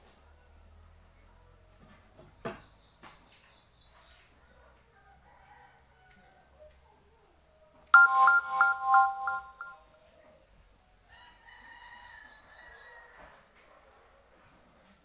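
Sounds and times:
loud chiming tune: 0:08.0 - 0:09.8
faint steady tonal sound: 0:08.0 - 0:10.3.

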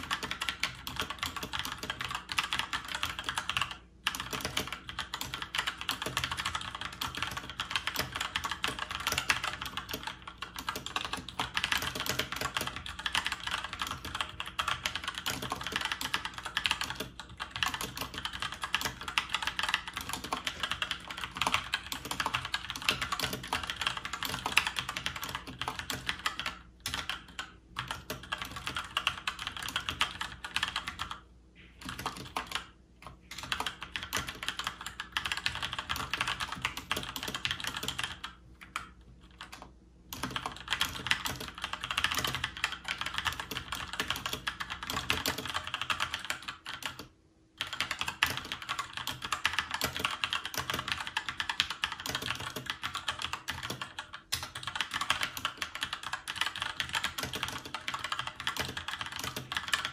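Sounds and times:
mechanical keyboard typing: 0:00.0 - 0:59.9.

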